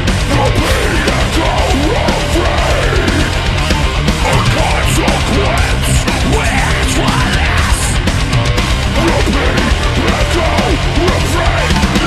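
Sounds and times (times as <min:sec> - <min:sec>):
distorted heavy metal guitars: 0:00.0 - 0:12.0
drums: 0:00.0 - 0:12.0.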